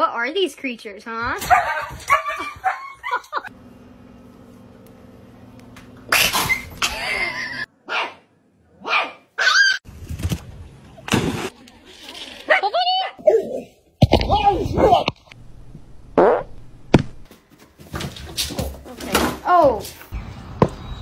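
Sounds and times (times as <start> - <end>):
dog barking and yipping: 1.4 - 3.2, 7.9 - 8.2, 8.8 - 9.8
steady low hum: 3.5 - 7.7.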